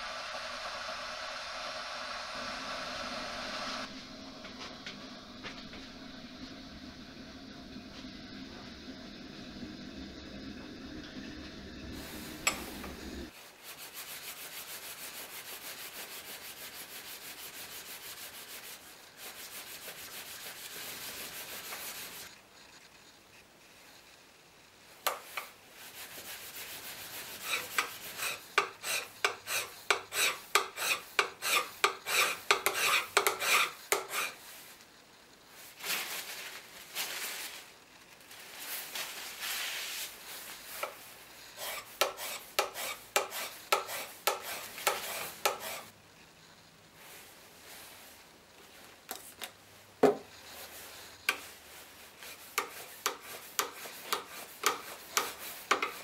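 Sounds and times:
blade scraping on sharpening plate: 27.4 - 34.4, 41.6 - 45.9.

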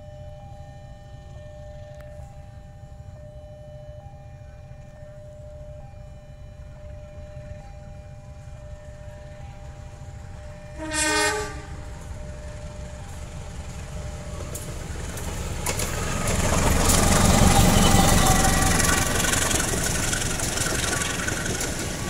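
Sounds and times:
locomotive engine rumble: 0.0 - 22.0
train wheel and rail noise: 0.0 - 22.0
rail clicks: 8.4 - 22.0
locomotive horn blast: 10.6 - 12.1, 17.0 - 19.8.

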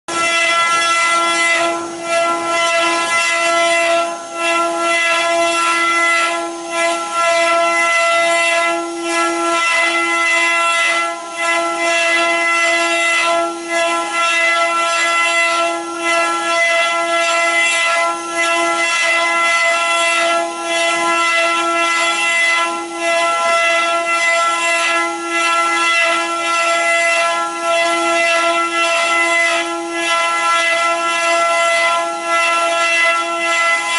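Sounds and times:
wood carving machine whining: 0.1 - 33.9.

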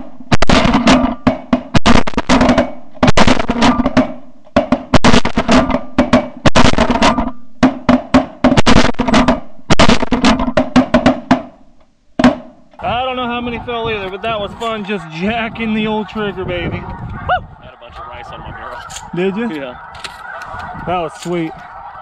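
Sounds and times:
shotgun shots: 0.3 - 4.2, 4.9 - 7.3, 8.5 - 10.6, 18.7 - 22.0.

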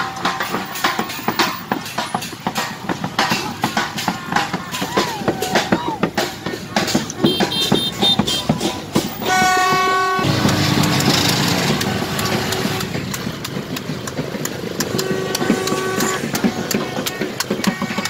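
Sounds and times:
horn blasts: 7.2 - 13.2, 14.8 - 18.0.

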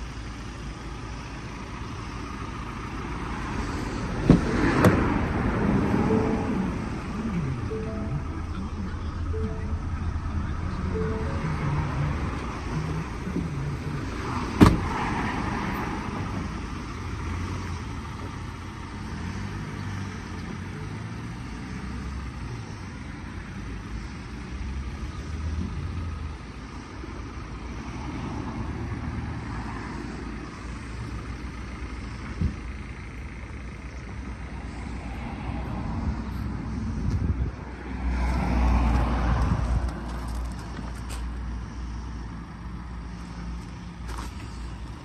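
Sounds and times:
diesel engine idling: 0.0 - 45.0
van door shutting: 4.2 - 5.2, 14.5 - 15.1.

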